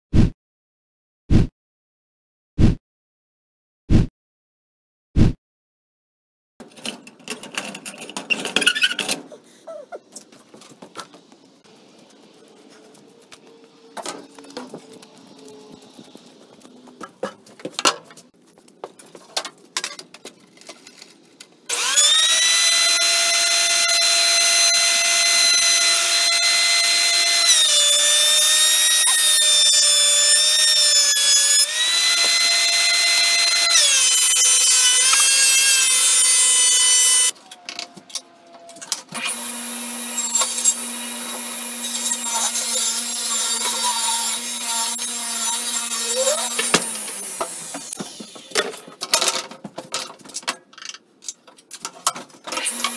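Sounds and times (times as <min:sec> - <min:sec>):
table saw running: 0:21.7 - 0:37.3.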